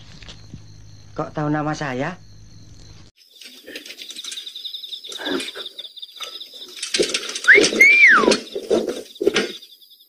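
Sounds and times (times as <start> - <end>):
high insect trill: 0.0 - 10.0
low bird coos: 5.1 - 6.7
rising and falling whistled bird call: 7.4 - 8.6.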